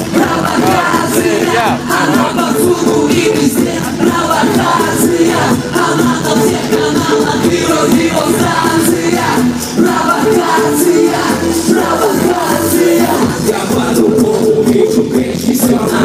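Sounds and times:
loud live pop music: 0.0 - 16.0
person singing: 0.0 - 16.0.

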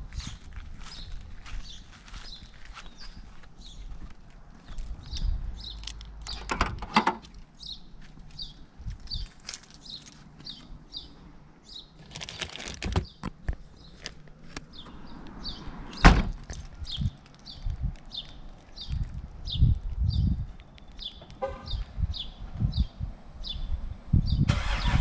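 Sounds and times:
bird chirping: 7.6 - 12.1, 16.8 - 24.5
rustling: 9.0 - 10.4, 12.0 - 13.0
trunk lid thudding shut: 16.0 - 16.4.

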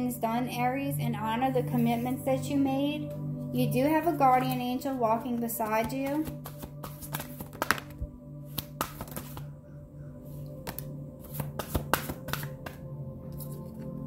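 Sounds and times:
quiet background music drone: 0.0 - 14.0
cards being shuffled: 5.6 - 9.5, 10.6 - 14.0.

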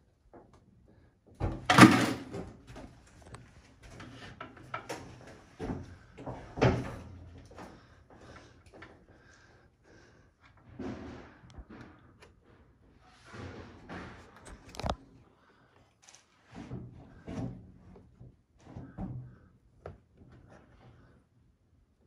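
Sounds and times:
knocks and clicks of hands-on work: 1.3 - 7.6
wallpaper scraping and rustling: 10.7 - 15.1.

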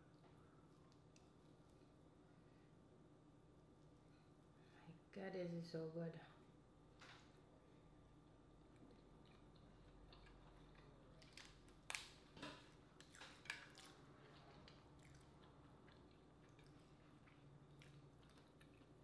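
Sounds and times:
faint chewing: 0.1 - 2.0, 8.6 - 19.0
crab shell cracking: 10.2 - 12.2.

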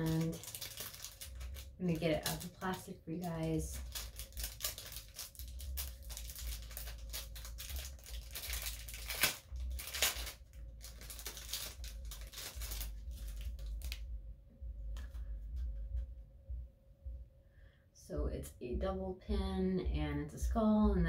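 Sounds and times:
plastic bag crinkling and tearing: 0.0 - 14.0.

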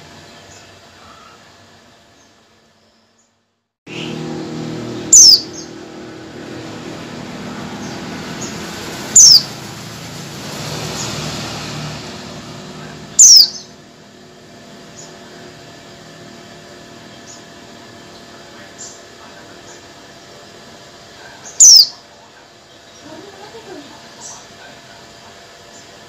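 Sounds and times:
bird high down-slurred calls: 5.0 - 5.8, 7.8 - 9.6, 13.1 - 13.8, 21.4 - 22.0
faint short bird chirps: 13.2 - 13.6.

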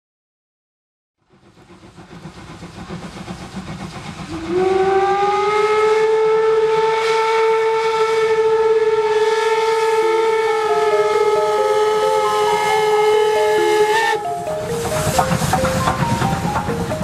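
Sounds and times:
steam locomotive chuffing: 1.2 - 17.0
steam whistle blast: 4.3 - 16.4.

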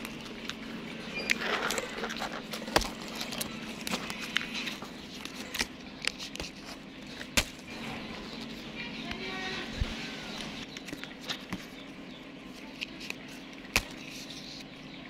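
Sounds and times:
steady low hum: 0.0 - 15.0
twigs snapping: 1.2 - 7.7, 12.8 - 14.2.

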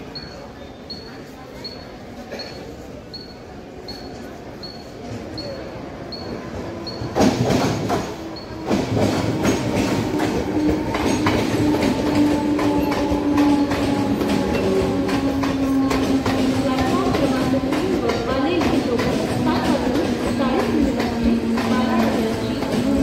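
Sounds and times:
train whine: 2.9 - 23.0
train wheels clattering: 6.2 - 23.0.

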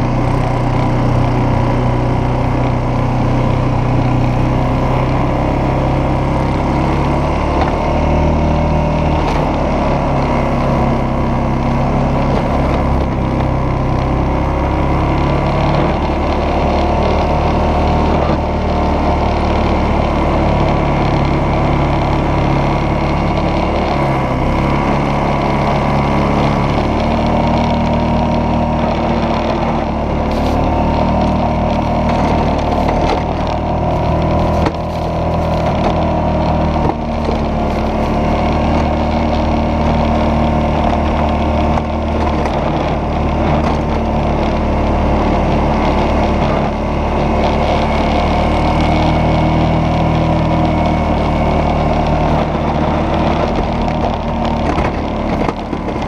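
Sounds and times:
atv engine running: 0.0 - 56.0
plow blade pushing snow: 0.0 - 56.0
short crackles: 30.2 - 39.5.

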